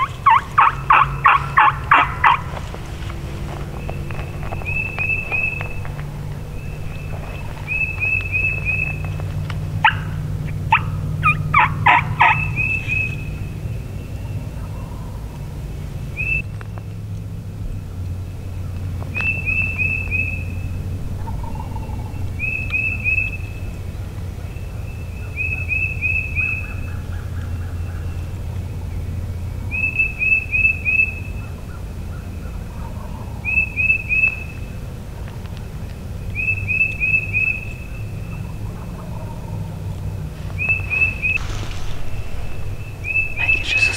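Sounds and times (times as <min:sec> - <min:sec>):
distant turkeys gobbling: 0:00.0 - 0:15.6, 0:18.4 - 0:24.6, 0:29.8 - 0:35.3, 0:36.4 - 0:43.9
songbird whistling: 0:03.7 - 0:09.2, 0:09.8 - 0:14.3, 0:16.2 - 0:16.5, 0:19.1 - 0:20.7, 0:21.4 - 0:23.6, 0:36.3 - 0:38.4, 0:40.5 - 0:43.9.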